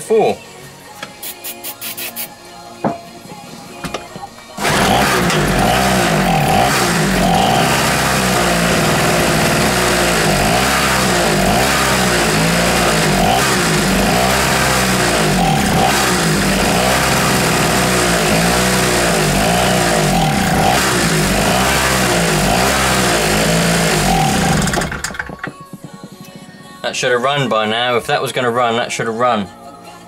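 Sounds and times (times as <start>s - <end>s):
generator engine running unevenly: 4.6s - 25.5s.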